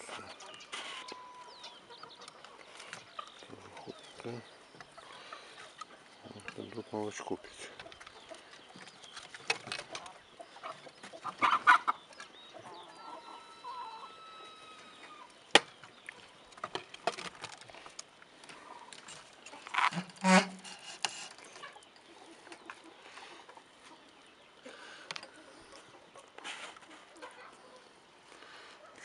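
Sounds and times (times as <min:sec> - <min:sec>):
animal calls: 0:12.6 - 0:15.4.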